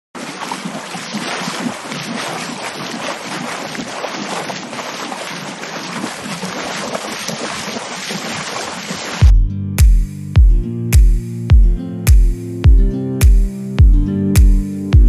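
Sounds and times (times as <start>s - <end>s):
rushing water: 0.2s - 9.3s.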